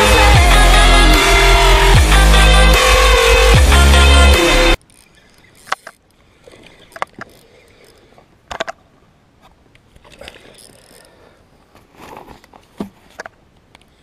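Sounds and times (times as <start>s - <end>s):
loud electronic music: 0.0s - 4.8s
fishing reel clicks and knocks: 4.8s - 6.2s, 6.9s - 8.8s, 10.6s - 11.1s.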